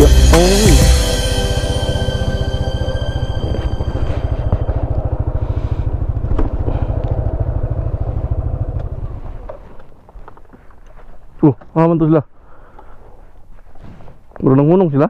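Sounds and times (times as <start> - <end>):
motorcycle engine pulsing: 0.0 - 10.2.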